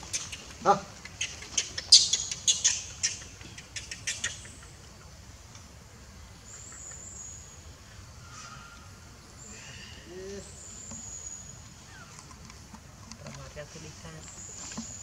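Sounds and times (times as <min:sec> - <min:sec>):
macaques squeaking: 0:00.0 - 0:04.8.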